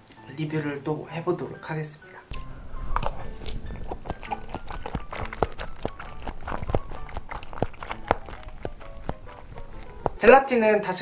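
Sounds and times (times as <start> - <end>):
quiet background music: 0.0 - 11.0
wet chewing mouth clicks: 2.3 - 10.2.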